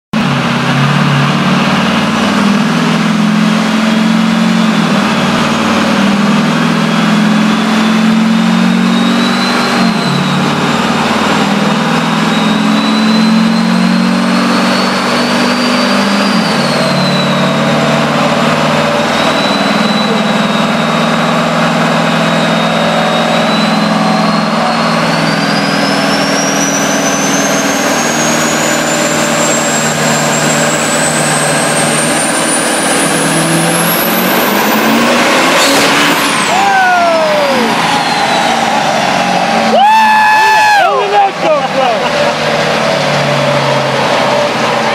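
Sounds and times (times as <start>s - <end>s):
engine running hard: 0.1s - 44.9s
high turbo whistle: 2.9s - 41.6s.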